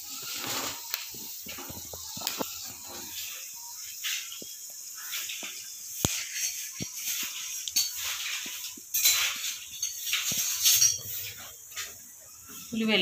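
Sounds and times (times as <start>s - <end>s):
liquid boiling with hiss: 0.0s - 13.0s
pops and clicks: 0.2s - 3.2s, 4.3s - 8.9s.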